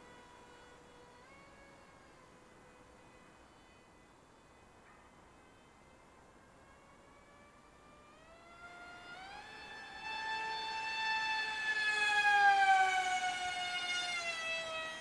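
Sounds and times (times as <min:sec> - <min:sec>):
electric motor and propeller whining: 0:00.0 - 0:15.0.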